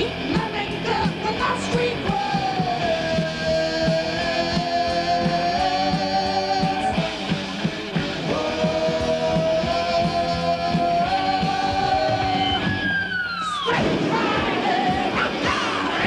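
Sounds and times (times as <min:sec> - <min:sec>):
steady drum beat: 0:00.0 - 0:12.6
electric guitars: 0:00.0 - 0:16.0.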